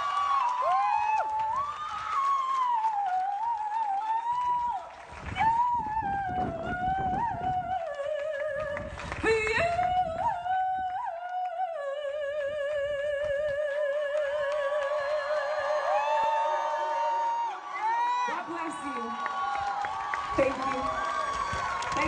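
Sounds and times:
woman singing wordlessly: 0:05.4 - 0:16.0.

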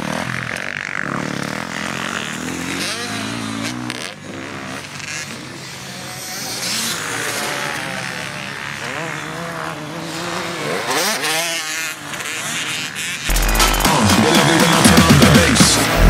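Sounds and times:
dirt bike engines revving: 0:00.0 - 0:16.0.

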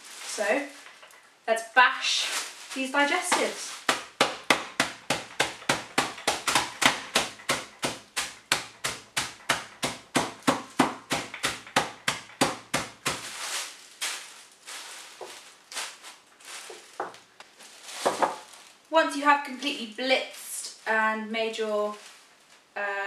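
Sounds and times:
plastic bag rustling: 0:00.0 - 0:18.9, 0:19.8 - 0:22.7
rolling pin bashing biscuits: 0:03.0 - 0:14.2.

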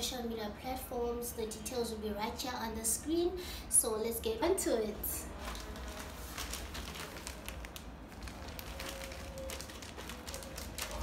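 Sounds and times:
plastic bag crinkling: 0:05.2 - 0:11.0.

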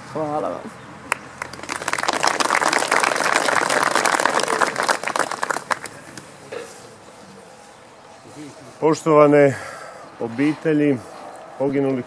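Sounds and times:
crowd applauding: 0:01.1 - 0:06.2.

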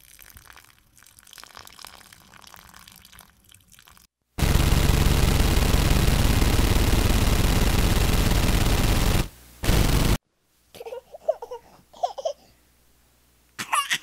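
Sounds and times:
loud steady hiss: 0:04.4 - 0:10.2.

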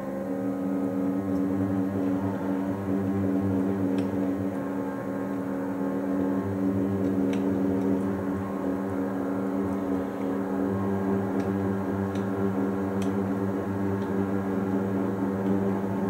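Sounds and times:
faint ticks: 0:11.3 - 0:13.3.

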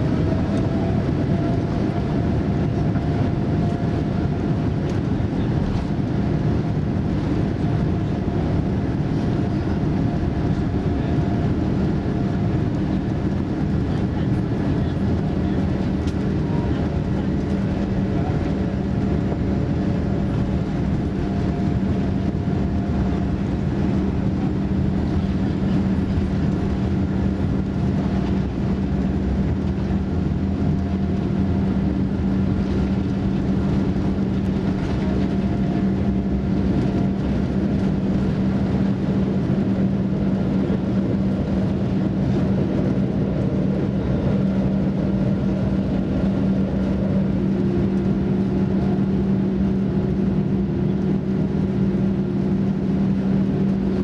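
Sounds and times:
jet engine rumble in cabin: 0:00.0 - 0:54.0.

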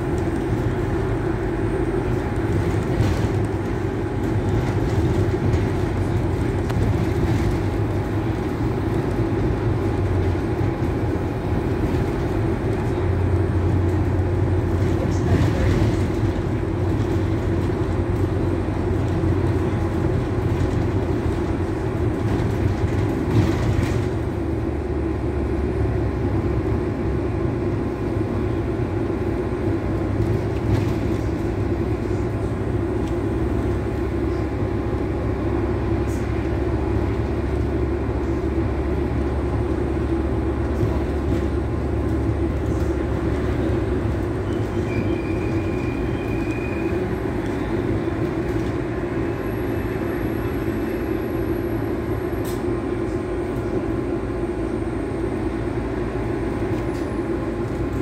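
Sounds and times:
bus engine and road rumble: 0:00.0 - 0:58.0.

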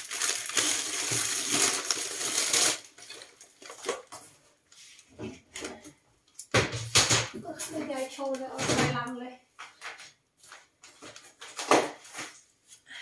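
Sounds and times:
bread bag crinkling: 0:00.0 - 0:04.2.

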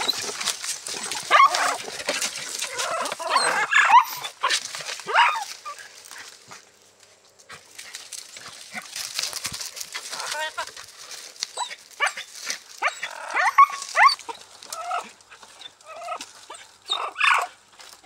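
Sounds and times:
dogs yelping and whining: 0:00.0 - 0:06.0, 0:11.4 - 0:17.6.

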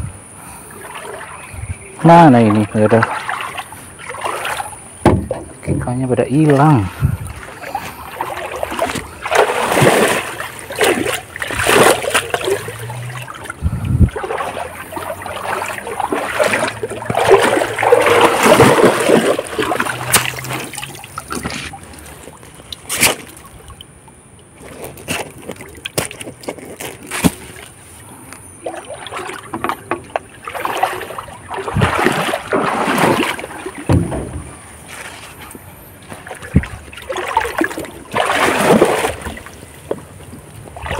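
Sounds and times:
water splashing and sloshing: 0:00.0 - 0:40.9
sharp knocks: 0:05.0 - 0:05.5, 0:33.9 - 0:34.7.

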